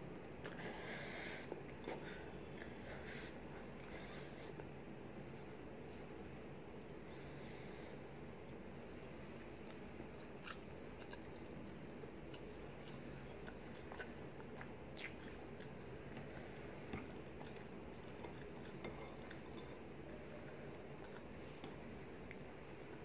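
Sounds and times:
steady low hum: 0:00.0 - 0:23.0
person chewing food: 0:09.4 - 0:23.0.

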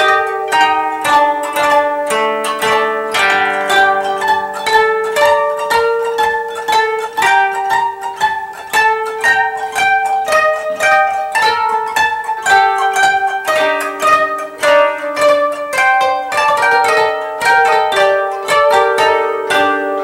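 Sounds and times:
koto plucked strings: 0:00.0 - 0:20.0.

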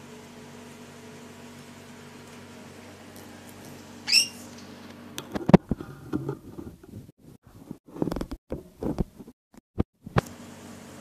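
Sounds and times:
parrot shrill call: 0:04.0 - 0:04.5.

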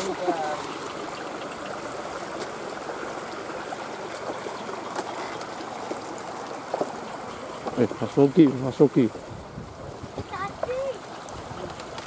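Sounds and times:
water flowing in a ditch: 0:00.0 - 0:12.0.

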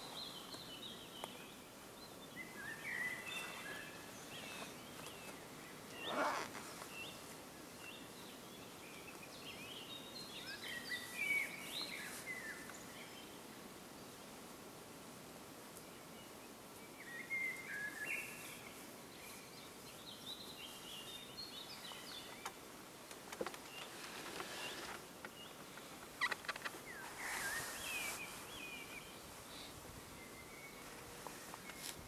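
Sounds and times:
steady outdoor hiss: 0:00.0 - 0:32.0
songbird warbling: 0:25.8 - 0:29.7.

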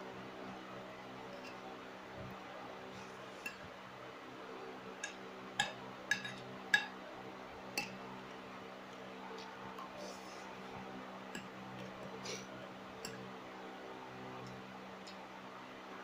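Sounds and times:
metal spoon clinking on ceramic plate: 0:05.0 - 0:06.9.

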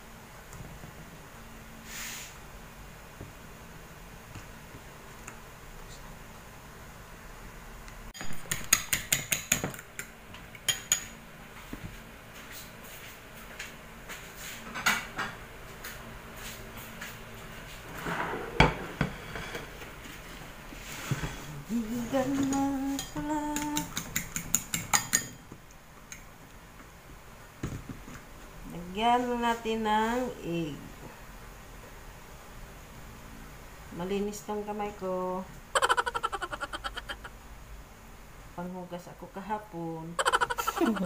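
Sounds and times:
dishes and cutlery knocking: 0:23.0 - 0:25.4
fork beating egg in bowl: 0:23.0 - 0:25.4, 0:35.8 - 0:37.3, 0:40.2 - 0:41.0.

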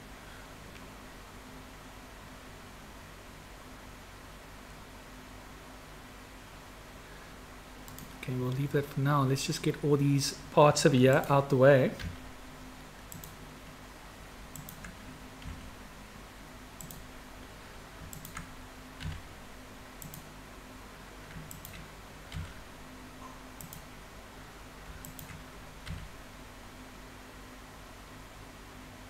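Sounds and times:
faint low hum: 0:00.0 - 0:29.0
mouse and keyboard clicks: 0:07.9 - 0:08.2, 0:13.1 - 0:13.4, 0:14.5 - 0:15.7, 0:16.8 - 0:17.1, 0:18.0 - 0:19.3, 0:20.0 - 0:20.3, 0:21.3 - 0:22.6, 0:25.0 - 0:26.1.

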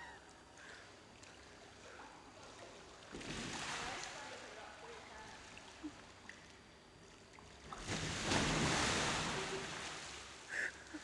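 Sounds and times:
water sloshing and rushing: 0:02.4 - 0:06.6, 0:07.2 - 0:11.0.

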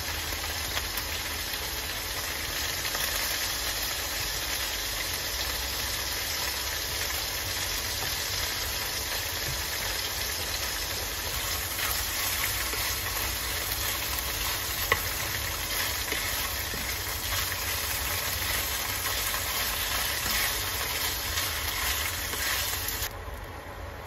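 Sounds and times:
tofu sizzling in a pan: 0:00.0 - 0:23.1
wooden spatula stirring: 0:11.2 - 0:23.1.

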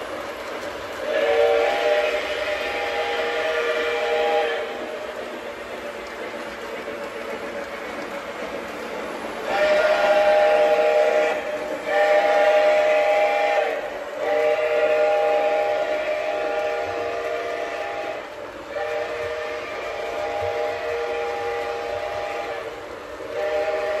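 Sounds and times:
model train running on track: 0:00.0 - 0:24.0
model train steam whistle: 0:01.0 - 0:05.2, 0:09.4 - 0:24.0.

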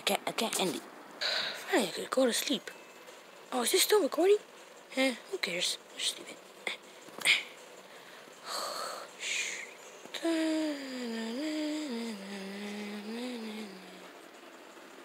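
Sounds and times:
person humming a tune: 0:08.5 - 0:14.2.

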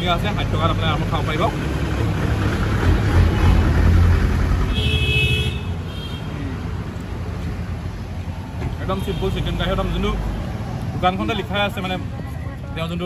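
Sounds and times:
vehicle passing close by: 0:01.1 - 0:04.8
vehicle horn toot: 0:04.7 - 0:06.3.

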